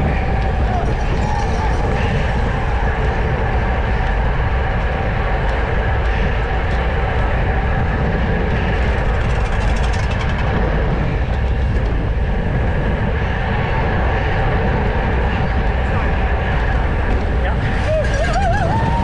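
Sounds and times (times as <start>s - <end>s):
rapid fine ticking: 0.0s - 13.1s
wind buffeting microphone: 0.0s - 19.0s.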